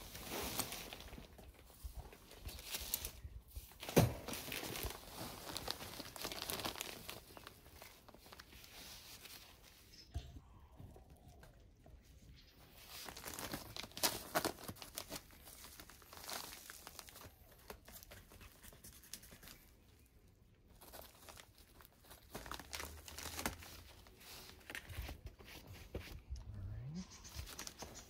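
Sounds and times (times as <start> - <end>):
plastic bag crinkling and tearing: 0.0 - 9.6, 12.7 - 19.7, 20.7 - 25.3.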